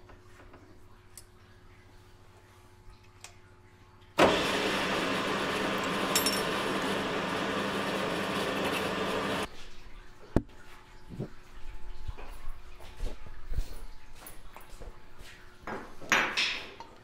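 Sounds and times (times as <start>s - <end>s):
milling machine running: 4.2s - 9.5s.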